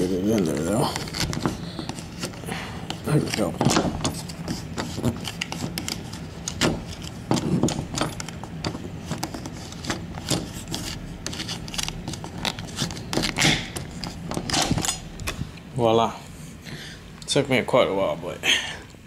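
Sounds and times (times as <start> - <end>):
plastic card scraping a door latch: 9.0 - 15.4.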